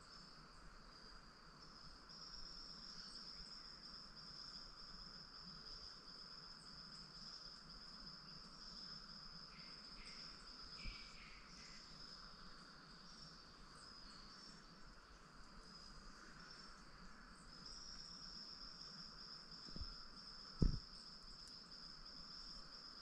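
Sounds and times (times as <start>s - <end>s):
faint insect trill: 0.0s - 23.0s
faint chirps: 9.5s - 23.0s
soft tap: 20.6s - 20.8s.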